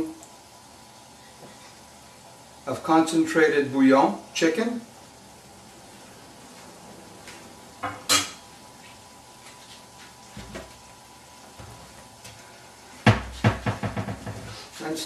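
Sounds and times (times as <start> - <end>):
metal utensils clinking on cookware: 7.8 - 8.4.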